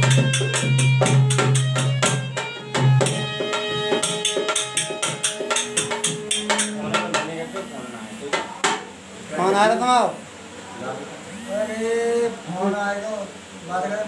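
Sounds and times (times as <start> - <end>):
drum fast rhythm: 0.0 - 7.7
harmonium held notes: 0.0 - 8.6.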